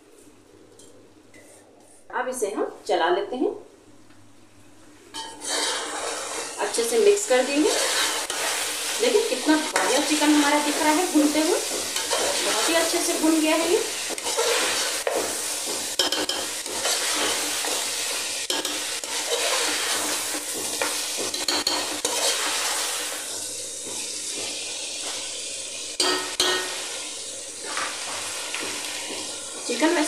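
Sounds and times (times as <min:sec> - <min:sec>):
chicken sizzling in hot oil: 0:05.2 - 0:30.0
spoon stirring: 0:07.4 - 0:13.1, 0:20.9 - 0:22.5.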